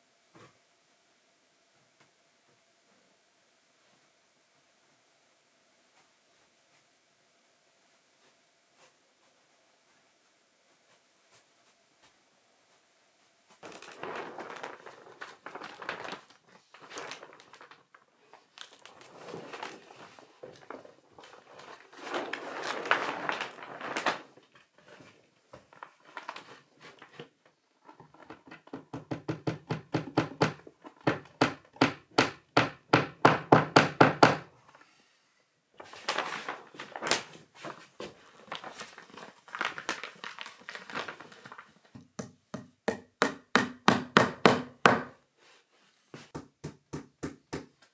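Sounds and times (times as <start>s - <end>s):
plastic sheeting rustling: 10.7s - 27.4s, 35.8s - 42.0s.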